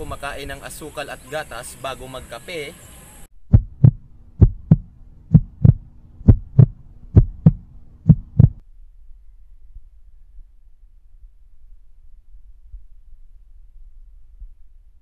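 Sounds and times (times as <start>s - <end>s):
heartbeat thumps: 3.4s - 8.6s.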